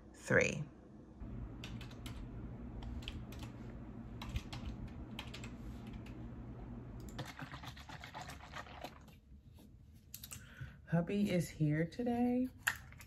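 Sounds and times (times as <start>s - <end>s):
typing on keyboard: 1.6s - 2.2s, 2.8s - 3.6s, 4.2s - 6.2s.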